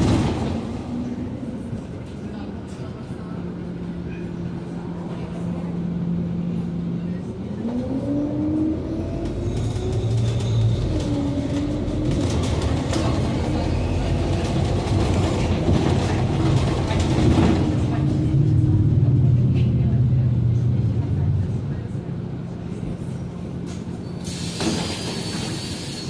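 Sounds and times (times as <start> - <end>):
bus engine rumble: 0.0 - 26.0.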